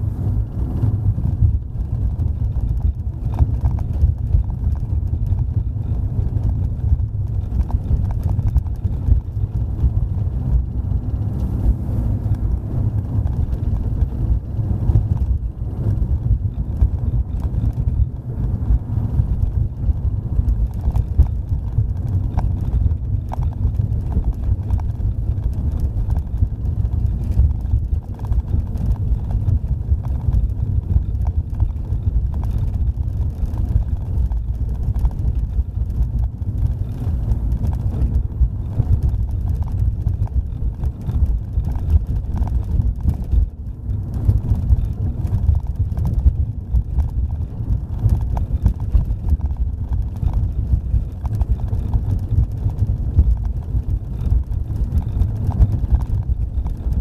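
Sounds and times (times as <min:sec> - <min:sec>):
road and wind rumble: 0:00.0 - 0:57.0
small knocks and rattles: 0:00.8 - 0:11.6, 0:12.2 - 0:57.0.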